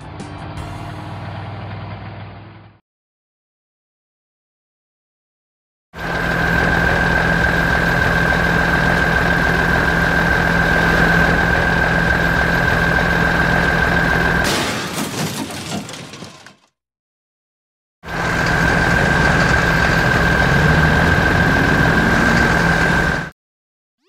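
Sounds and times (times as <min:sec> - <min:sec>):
truck engine running with whine: 0:00.0 - 0:02.8, 0:06.0 - 0:14.5, 0:18.0 - 0:23.4
crash and clatter: 0:14.4 - 0:16.7.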